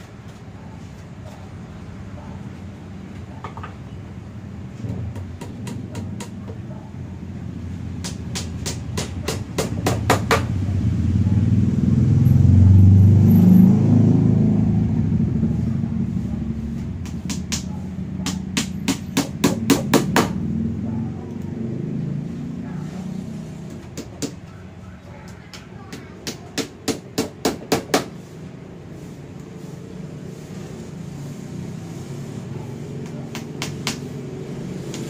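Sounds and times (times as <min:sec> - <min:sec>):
low vehicle rumble: 0:00.2 - 0:18.6.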